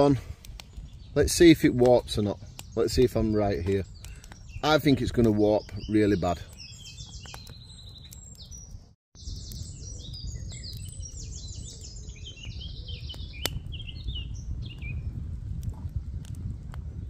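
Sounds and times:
small birds chirping: 0.0 - 17.0
wood fire crackling: 0.0 - 17.0
wood fire rumbling in stove: 12.6 - 17.0.

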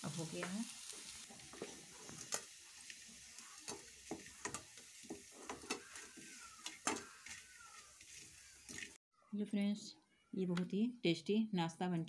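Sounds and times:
food sizzling in oil: 0.0 - 9.0
wooden spatula scraping and knocking pan: 1.3 - 9.0.

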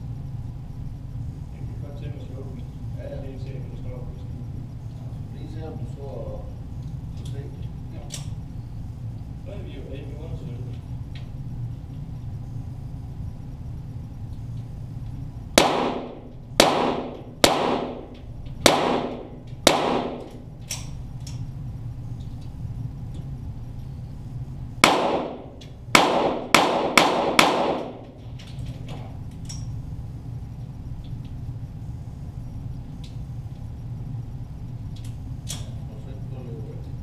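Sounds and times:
pistol shots echoing indoors: 15.6 - 20.9, 24.8 - 28.2.

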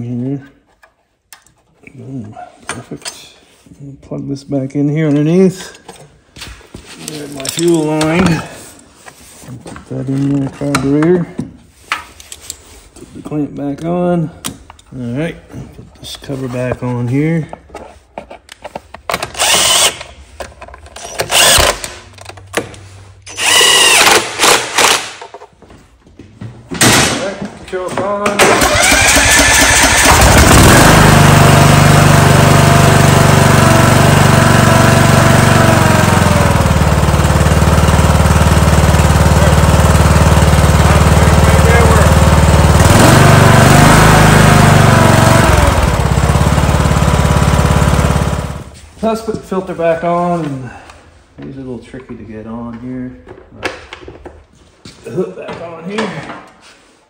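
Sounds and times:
cordless drill whining: 19.3 - 20.0, 21.0 - 21.8, 23.3 - 24.9
lawn tractor engine running: 28.4 - 48.7.

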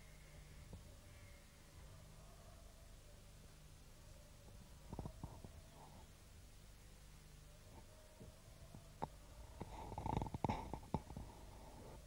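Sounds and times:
stomach growling: 4.9 - 5.6, 9.0 - 11.4.

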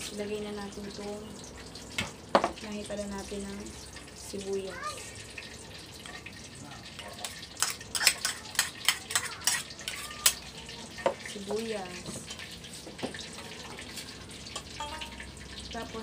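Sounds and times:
spoon clinking in steel bowl: 14.6 - 15.4
fork tapping ceramic bowl: 14.8 - 15.2.

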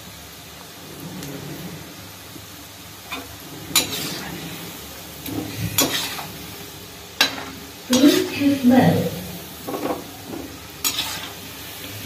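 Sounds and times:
oil sizzling: 0.0 - 12.0.

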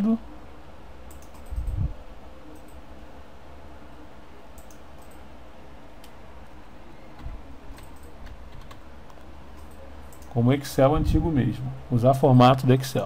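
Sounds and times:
low steady hum: 0.0 - 13.0
keyboard keystrokes and clicks: 1.1 - 1.8, 4.6 - 5.2, 7.2 - 10.4.

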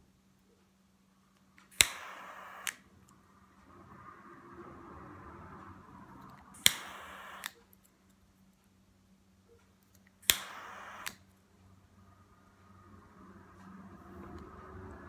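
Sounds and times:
lighter ignition click: 1.6 - 2.8, 6.6 - 7.6, 10.2 - 11.2
soft lighter release click: 1.6 - 2.8, 6.6 - 7.6, 10.2 - 11.2
lighter gas hiss: 1.7 - 2.9, 6.1 - 7.6, 10.2 - 11.3.

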